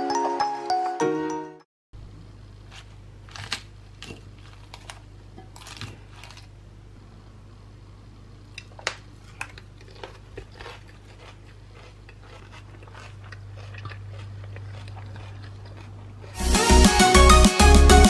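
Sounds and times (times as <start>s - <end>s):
salad leaves crunching and rustling: 9.8s - 16.1s.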